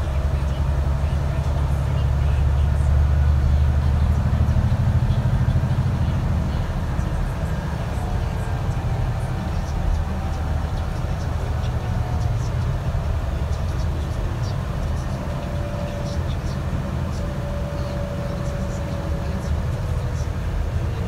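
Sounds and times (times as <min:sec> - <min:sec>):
bus engine drone: 0:00.0 - 0:21.0
faint whine: 0:00.0 - 0:21.0.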